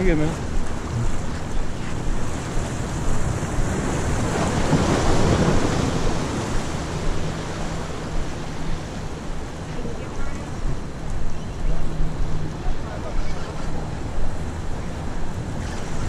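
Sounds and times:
small waves washing against boulders: 0:00.0 - 0:11.3
wind buffeting microphone: 0:00.0 - 0:16.0.

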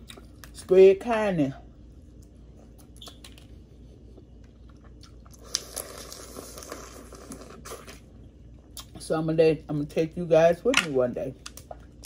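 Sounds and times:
sucking and chewing: 0:02.1 - 0:09.0.

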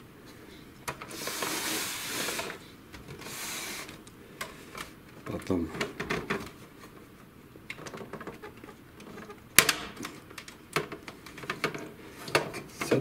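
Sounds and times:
plastic clicks and knocks: 0:07.7 - 0:13.0.

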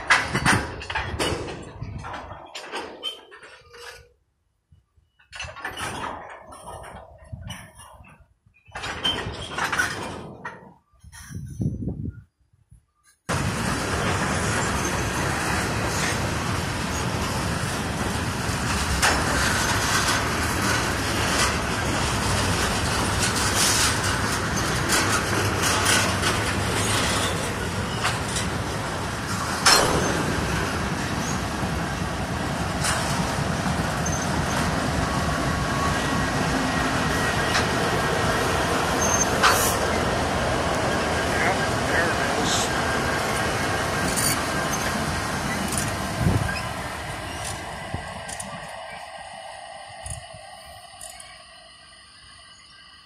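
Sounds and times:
train cars knocking: 0:00.0 - 0:04.0, 0:13.3 - 0:51.2
freight train wheels rumbling: 0:00.0 - 0:12.3, 0:13.0 - 0:53.0.

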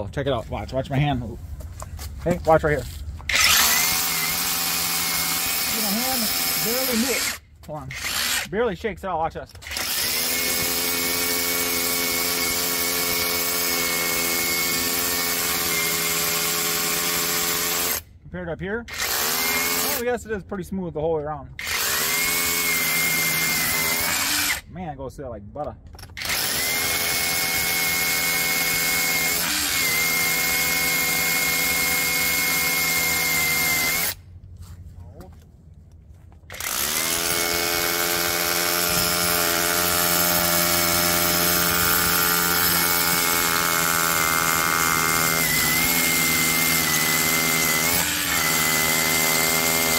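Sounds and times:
rotary hammer drilling into stone: 0:03.3 - 0:08.5, 0:09.6 - 0:18.0, 0:18.9 - 0:20.1, 0:21.6 - 0:24.6, 0:26.0 - 0:34.2, 0:36.5 - 0:49.9.

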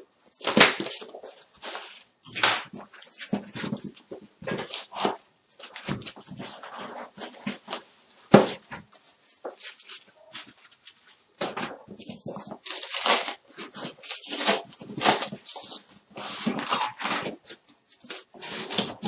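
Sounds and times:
foam sheets rustling on cardboard: 0:00.3 - 0:19.0.

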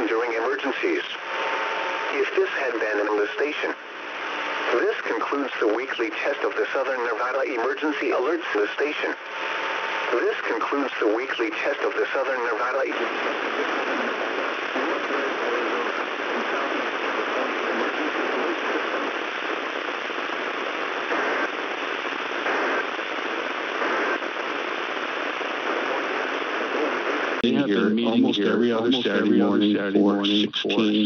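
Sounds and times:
radio static: 0:00.0 - 0:31.0.

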